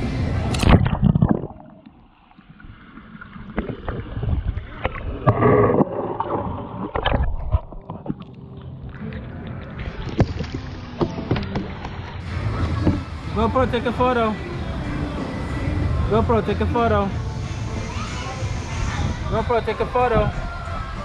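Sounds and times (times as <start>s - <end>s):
muffled water sloshing: 0.4s - 12.2s.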